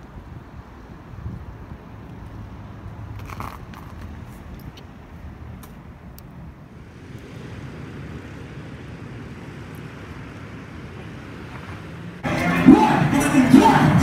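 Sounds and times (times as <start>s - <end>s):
wind on microphone: 0.0s - 11.3s
distant street traffic: 0.0s - 14.0s
live hip-hop concert music: 12.2s - 14.0s.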